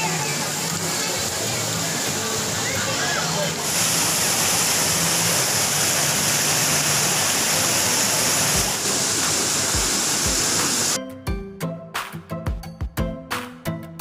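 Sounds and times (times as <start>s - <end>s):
water pouring over stone spillway: 0.0s - 11.0s
music with strong beat: 9.6s - 14.0s.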